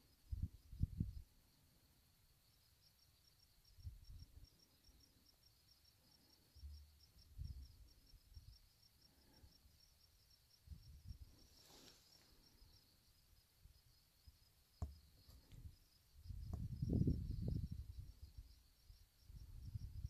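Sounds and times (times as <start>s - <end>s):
faint insect chirping: 0.0s - 20.0s
dull thumps on microphone: 14.8s - 15.3s.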